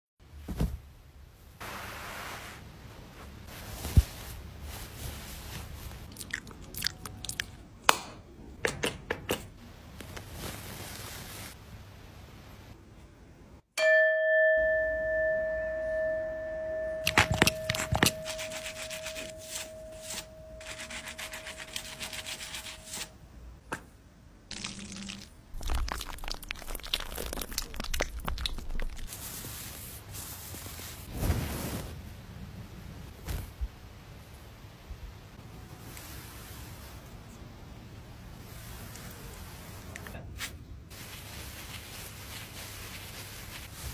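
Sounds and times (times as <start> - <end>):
single chime: 13.8 - 21.7
paper sheets patting: 17.1 - 23.1.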